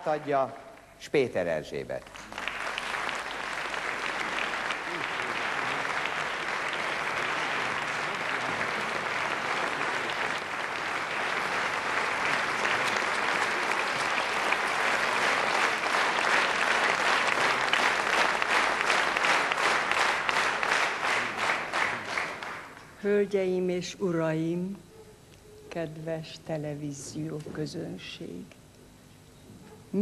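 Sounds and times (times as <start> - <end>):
audience applauding: 2.0 - 22.8
rhythmic clapping in unison: 2.0 - 22.9.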